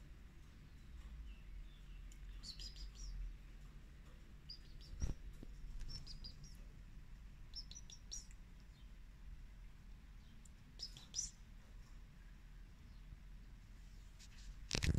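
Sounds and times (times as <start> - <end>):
small birds chirping: 0.0 - 14.9.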